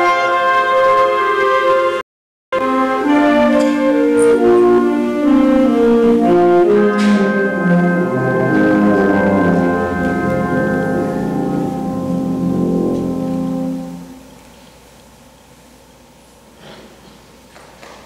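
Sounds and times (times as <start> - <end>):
symphonic band playing: 0.0 - 2.0, 2.6 - 14.4
cymbal crash: 6.5 - 14.4.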